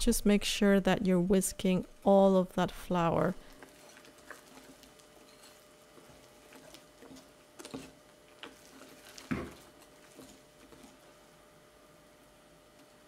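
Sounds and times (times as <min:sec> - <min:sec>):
whisk stirring thick batter: 0:03.4 - 0:11.4.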